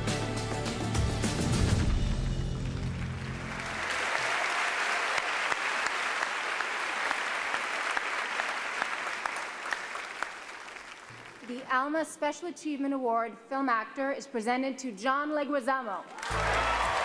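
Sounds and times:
audience applauding: 2.4 - 11.7, 16.1 - 17.0.

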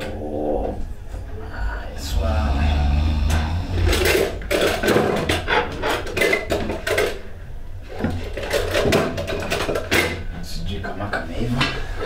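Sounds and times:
dishes clattering on wooden table: 3.3 - 7.2, 7.9 - 10.3.

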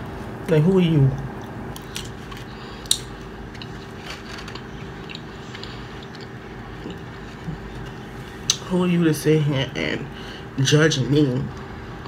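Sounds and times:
person chewing food: 1.2 - 8.6.

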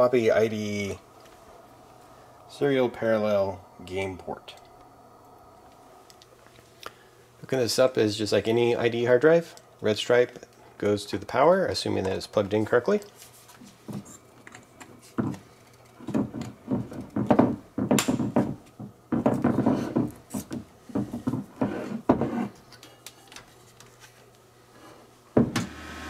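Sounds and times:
hard drives knocking and rubbing: 15.2 - 22.5.

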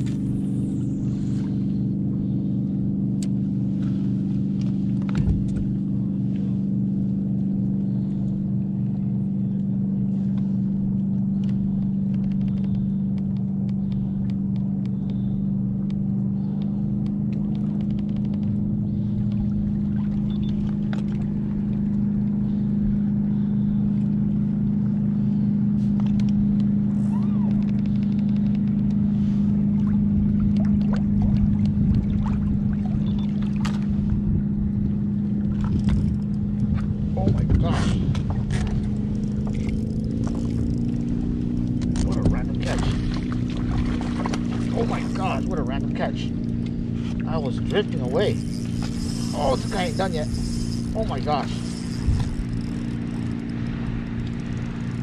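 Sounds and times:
electric trolling motor hum: 0.0 - 55.0
fishing reel clicks: 39.2 - 41.1, 47.7 - 55.0.

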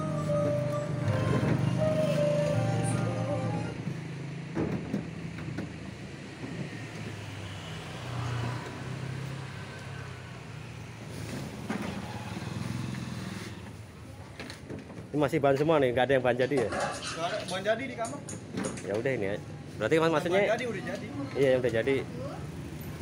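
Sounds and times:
vehicle engine humming: 0.0 - 14.1.

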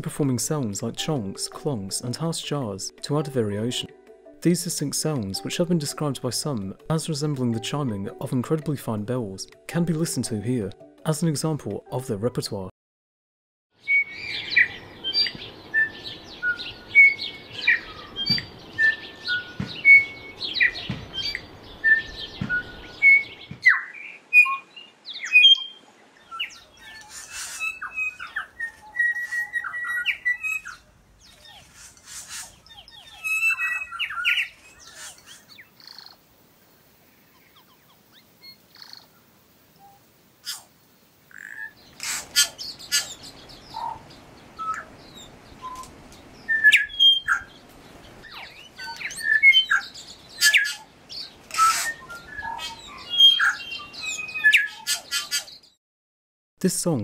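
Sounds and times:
bell-like birdsong: 13.9 - 23.4, 52.0 - 54.9.

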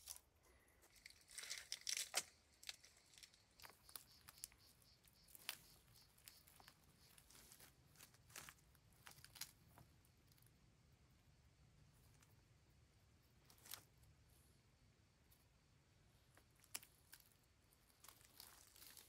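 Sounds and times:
hands clicking and rustling cable: 0.0 - 4.6.

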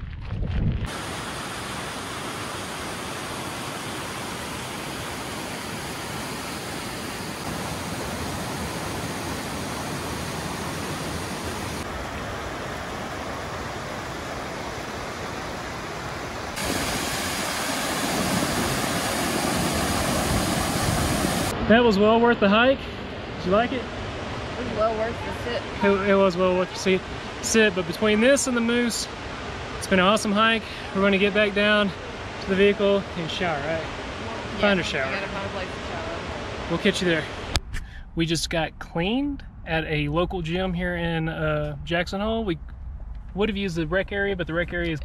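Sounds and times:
waterfall rushing over boulders: 0.9 - 21.5.

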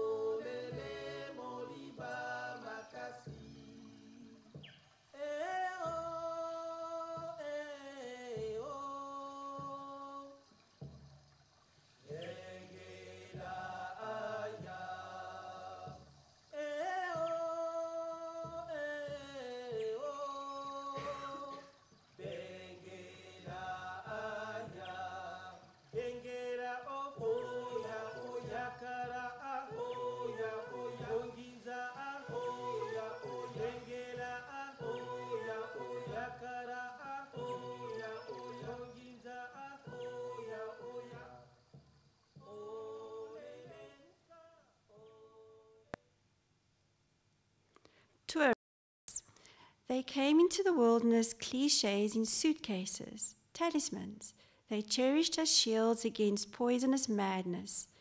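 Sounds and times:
person singing slow melody: 0.0 - 10.9, 12.1 - 41.8, 42.4 - 46.1.

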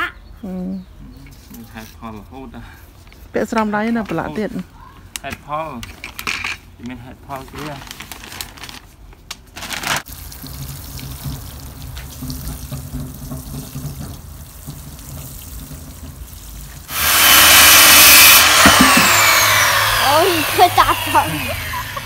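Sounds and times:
water pouring onto soil: 10.0 - 16.9
circular saw cutting wood: 16.9 - 22.0.

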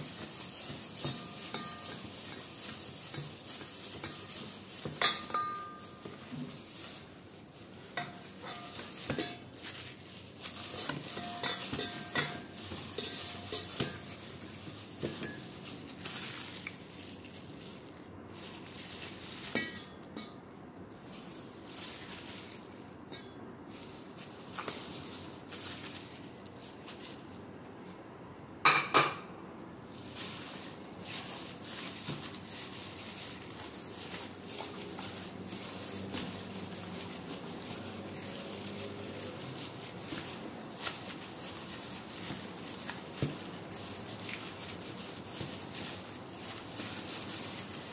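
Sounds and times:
plastic glove rustling: 0.0 - 20.2, 20.8 - 28.0, 29.8 - 47.9
meat squelching: 5.7 - 19.6, 29.9 - 47.9.

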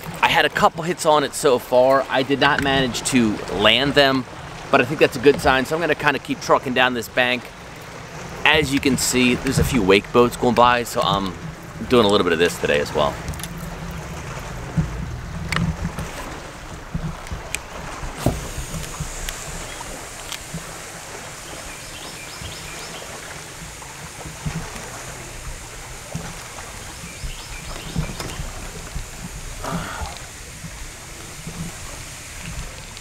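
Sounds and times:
waves lapping against boat hull: 0.0 - 33.0
low thumps: 8.5 - 32.8.

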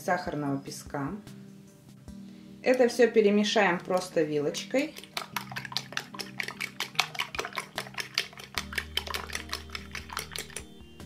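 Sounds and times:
fork clicking against bowl: 4.9 - 10.7.

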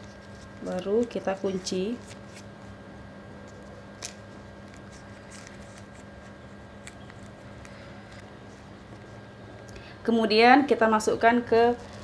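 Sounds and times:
leaf crinkling: 0.0 - 2.8, 3.4 - 9.2.

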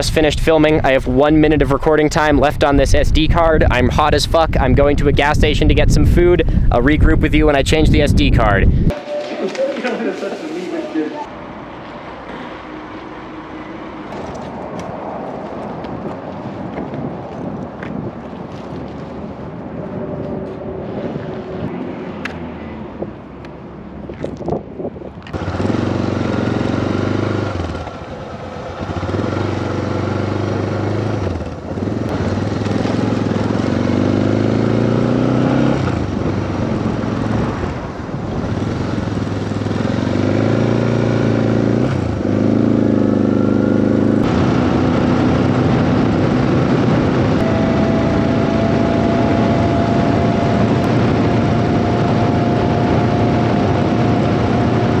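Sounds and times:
motorcycle engine accelerating: 25.2 - 55.0.

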